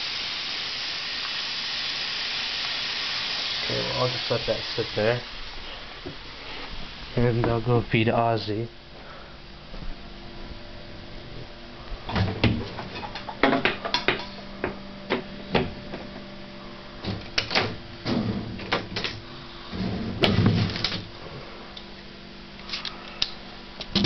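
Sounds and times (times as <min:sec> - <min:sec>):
faint steady hum: 0:00.0 - 0:24.0
objects knocking and rattling: 0:12.1 - 0:16.1, 0:17.0 - 0:21.1.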